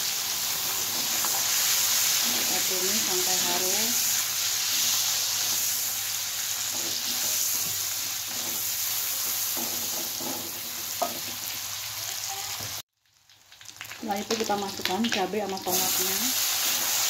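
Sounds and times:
food sizzling in hot oil: 0.0 - 17.0
spatula stirring in wok: 0.4 - 11.5.

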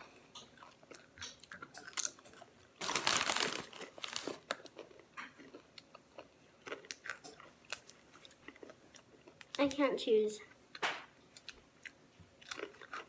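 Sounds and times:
pretzels crunching: 0.6 - 9.7, 11.4 - 13.0
plastic bag crinkling: 2.8 - 4.7.

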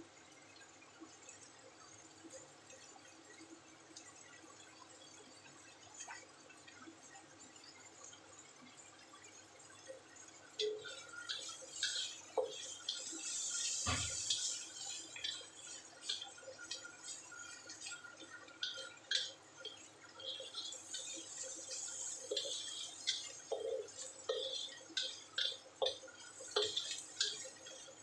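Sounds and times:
vegetables sizzling in a wok: 10.4 - 28.0
spatula scraping the pan: 10.6 - 28.0.

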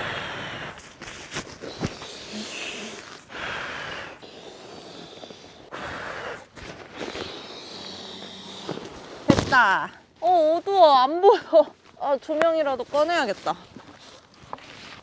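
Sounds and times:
hard effortful breathing: 0.0 - 9.3.

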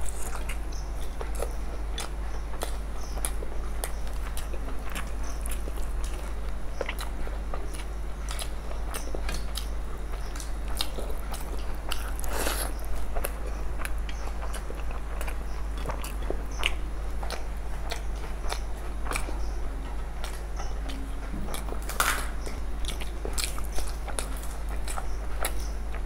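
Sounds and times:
crunchy bites: 0.0 - 19.4, 20.2 - 26.0
chewing and mouth clicks: 0.0 - 26.0.

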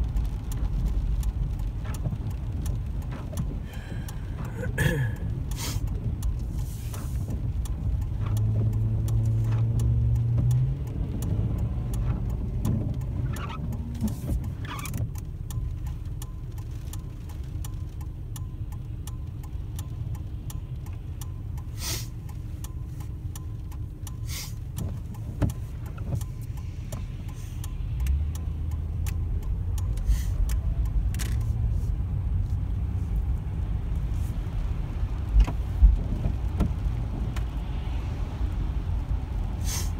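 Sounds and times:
car engine rumble: 0.0 - 39.9
tyre noise on wet road: 0.0 - 39.9
sharp taps and clicks: 5.2 - 34.0.

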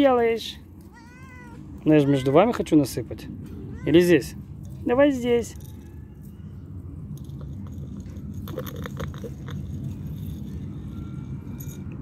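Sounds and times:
steady low rumble: 0.0 - 12.0
dry cat food rattling: 7.1 - 12.0.

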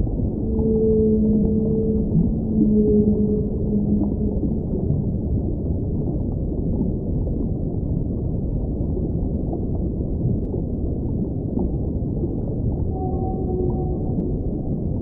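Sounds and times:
ocean water rumbling: 0.0 - 15.0.

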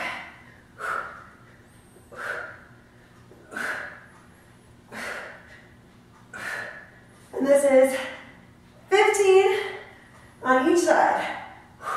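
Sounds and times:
woman breathing hard: 0.0 - 7.2, 11.2 - 11.9.

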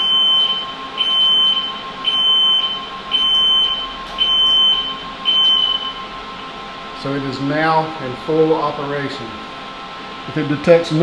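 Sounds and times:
high-pitched alarm beeps: 0.0 - 6.1.

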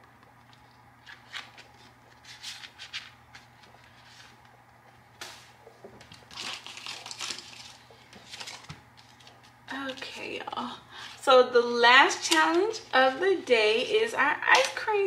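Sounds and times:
paper rustling: 1.0 - 4.5, 5.2 - 9.6
plastic sleeve crinkling: 5.2 - 10.2.

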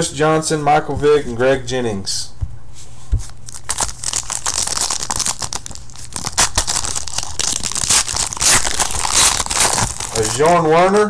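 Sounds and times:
foil wrapper tearing and crinkling: 3.4 - 11.0.

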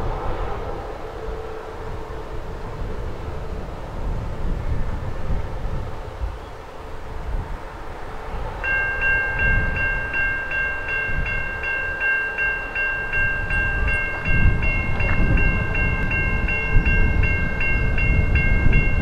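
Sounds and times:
diesel locomotive rumble: 0.0 - 19.0
railway warning bell ringing: 5.8 - 19.0.

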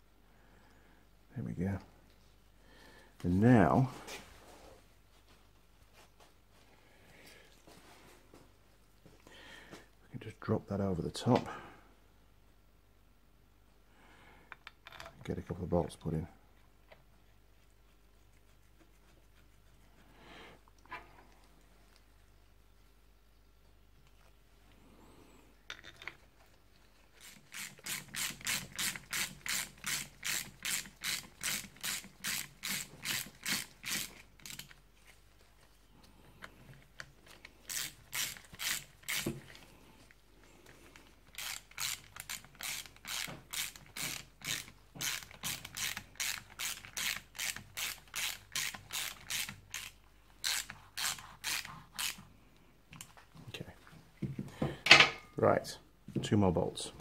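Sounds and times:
ratchet wrench clicking: 41.4 - 52.2.

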